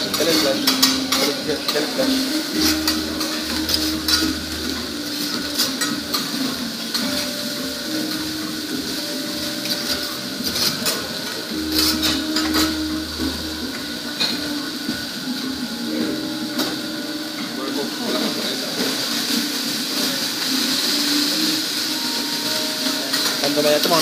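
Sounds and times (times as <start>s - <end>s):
metal spatulas scraping on griddle: 0.0s - 7.4s, 9.6s - 13.0s
griddle hiss: 0.0s - 24.0s.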